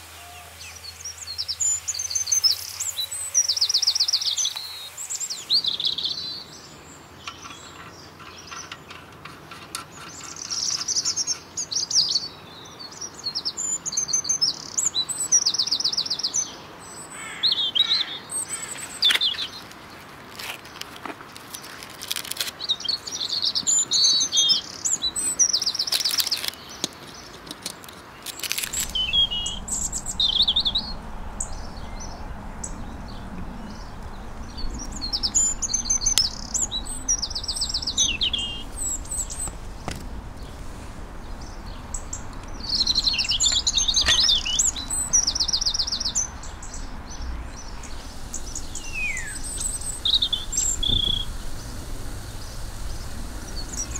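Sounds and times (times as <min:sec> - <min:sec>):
songbirds chirping: 0:00.2 - 0:53.9
low rumble: 0:28.5 - 0:53.9.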